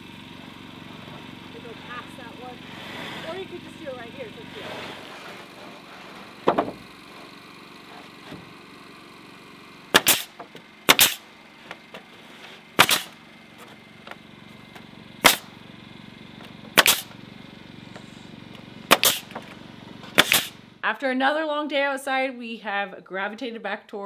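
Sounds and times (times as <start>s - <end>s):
nail gun firing into wood: 9.9s - 11.3s, 12.8s - 13.2s, 15.2s - 15.5s, 16.8s - 17.1s, 18.9s - 19.5s, 20.1s - 20.6s.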